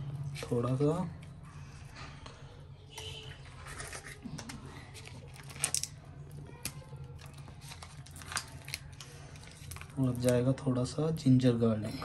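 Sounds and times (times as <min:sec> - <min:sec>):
faint clicks and rustles: 0:01.2 - 0:10.5.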